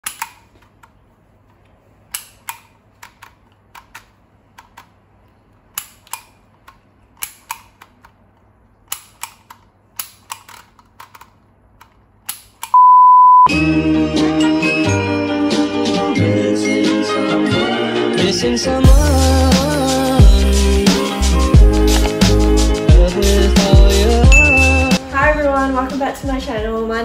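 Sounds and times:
loud steady beep: 12.8s - 13.5s, 24.3s - 25.0s.

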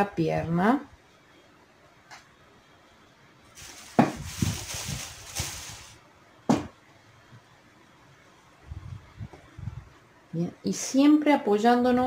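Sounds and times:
stuffing rustling: 3.5s - 6.0s.

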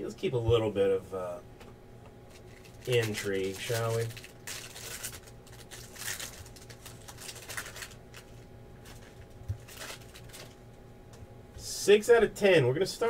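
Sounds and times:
trading cards rustling and scraping: 2.3s - 10.6s.

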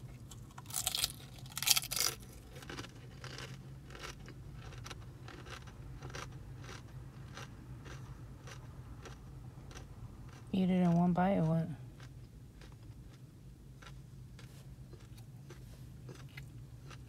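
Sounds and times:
low steady hum: 0.0s - 17.0s
crunchy chewing: 0.1s - 10.5s, 11.9s - 17.0s
crunchy bite: 0.2s - 10.4s.

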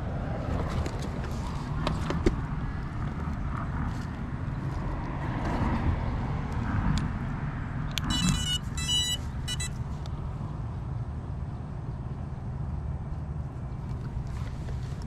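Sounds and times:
short electronic beeps: 8.0s - 9.8s.

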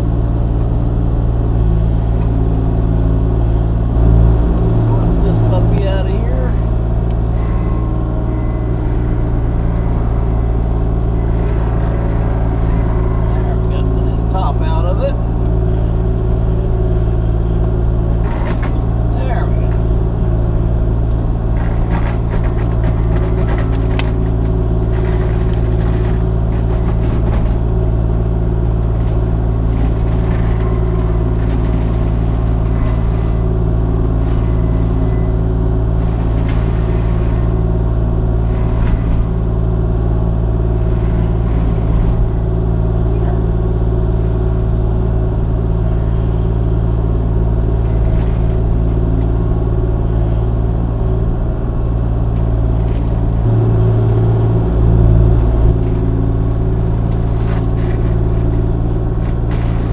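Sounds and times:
diesel engine running: 0.0s - 59.9s
mulcher crackling and knocking: 4.9s - 44.8s, 52.4s - 59.9s.

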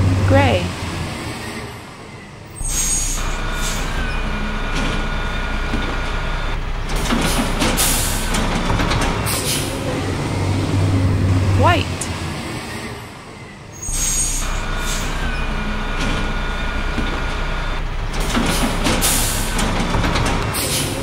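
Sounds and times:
truck engine rumble: 0.0s - 21.0s
clanks and hisses of bin lift: 6.9s - 9.9s, 13.9s - 16.3s, 18.1s - 21.0s.

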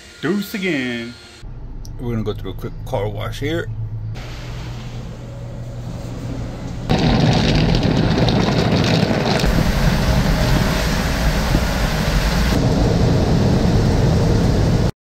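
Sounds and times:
low rumble: 1.4s - 14.9s
water jets spraying on car: 6.9s - 12.6s.

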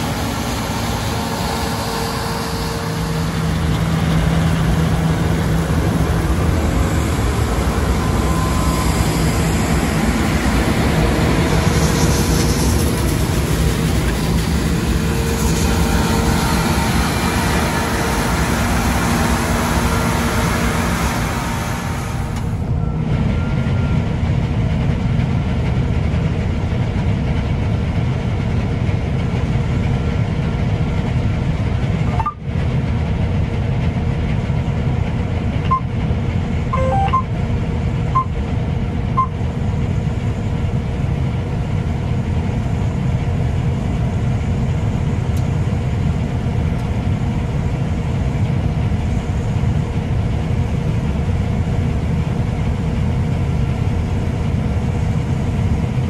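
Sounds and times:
combine harvester low drone: 0.0s - 56.0s
short electronic beeps: 32.1s - 32.4s, 35.7s - 35.9s, 36.8s - 37.3s, 38.2s - 38.4s, 39.2s - 39.4s.

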